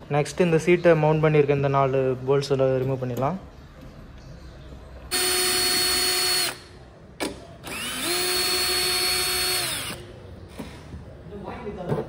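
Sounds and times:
power drill spinning: 0:05.1 - 0:06.6, 0:07.6 - 0:10.1.

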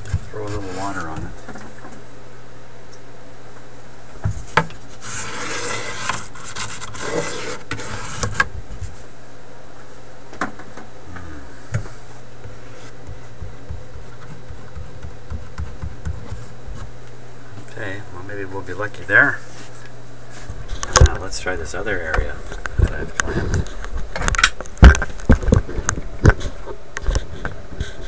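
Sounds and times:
scraping on paper lining: 0:00.4 - 0:01.2, 0:04.8 - 0:09.0.

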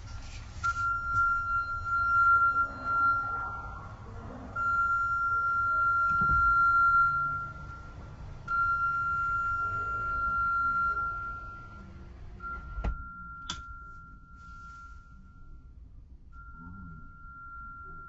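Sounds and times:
low machinery rumble: 0:00.0 - 0:18.0
electronic warning tone: 0:00.7 - 0:04.0, 0:04.6 - 0:15.6.

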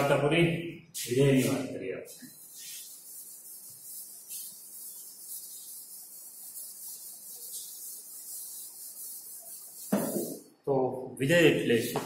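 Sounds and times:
duster wiping blackboard: 0:01.0 - 0:10.4.

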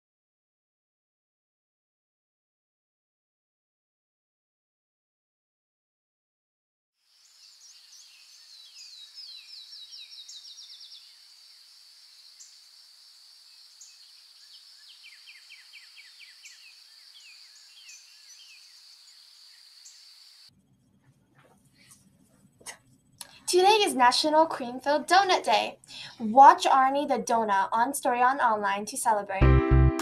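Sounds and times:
birds singing fast trills: 0:07.2 - 0:20.5.

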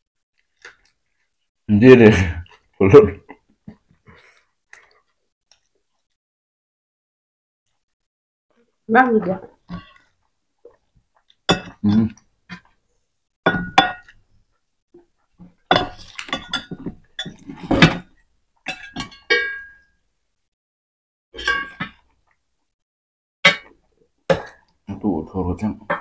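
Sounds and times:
metal spoon clinking on bowls: 0:11.5 - 0:12.2, 0:13.5 - 0:14.2, 0:15.7 - 0:17.5, 0:18.6 - 0:19.9.

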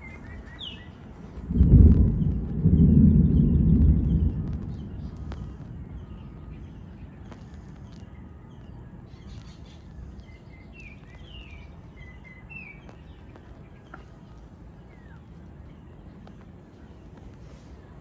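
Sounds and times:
birds chirping: 0:00.0 - 0:18.0
thunder rumbling: 0:00.7 - 0:08.0.

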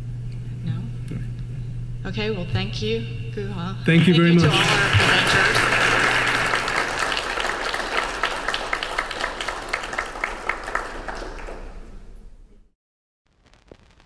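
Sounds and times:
audience applauding: 0:04.4 - 0:12.1.

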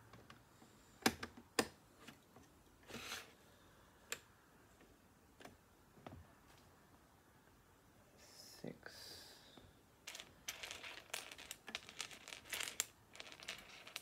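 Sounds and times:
plastic bricks clicking: 0:10.1 - 0:14.0
rustle of plastic pieces: 0:10.1 - 0:14.0.

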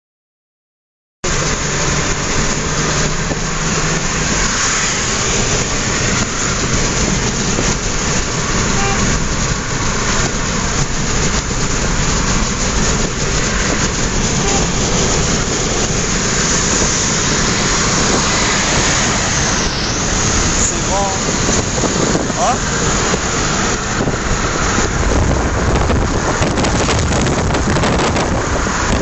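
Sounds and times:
low engine hum: 0:01.2 - 0:29.0
road and wind noise in car: 0:01.2 - 0:29.0.

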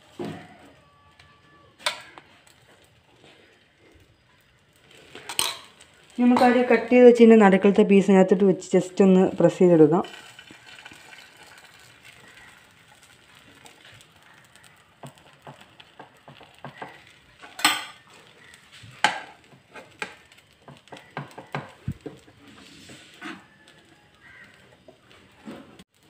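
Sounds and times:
eggs and bread sizzling: 0:00.0 - 0:26.0
steel spatula scraping a pan: 0:04.8 - 0:07.0, 0:10.0 - 0:15.2, 0:22.2 - 0:23.7.

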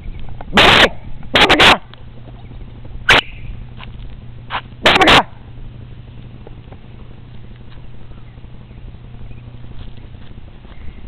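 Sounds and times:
puppy barking: 0:00.5 - 0:01.9, 0:04.8 - 0:05.3.

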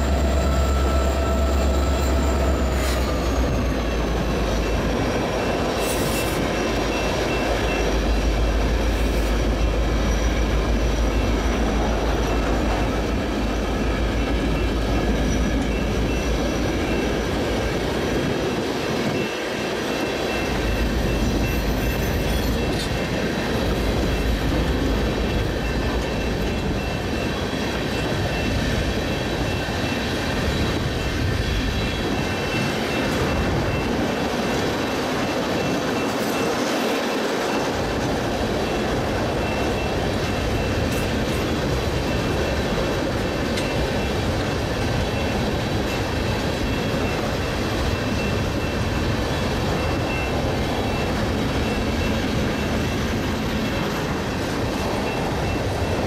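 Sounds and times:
high wheel squeal: 0:00.0 - 0:18.2, 0:19.0 - 0:23.2
diesel locomotive whine: 0:00.0 - 0:56.0
train wheels rumbling on rail: 0:00.0 - 0:56.0.

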